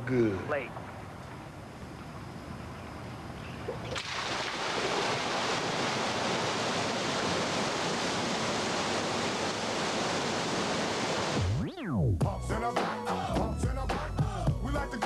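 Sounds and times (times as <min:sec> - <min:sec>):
steady rushing noise: 0:04.6 - 0:11.7.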